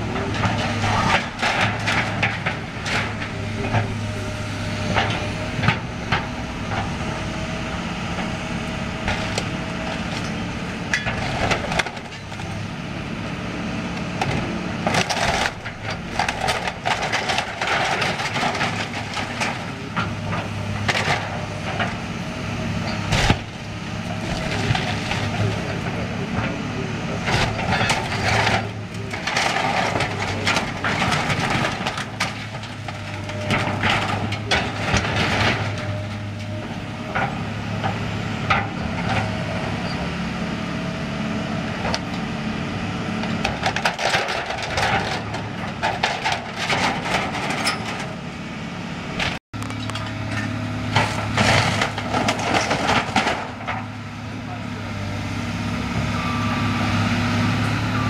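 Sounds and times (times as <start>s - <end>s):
excavator diesel engine running: 0.0s - 58.0s
wood and sheet metal breaking: 49.2s - 53.9s.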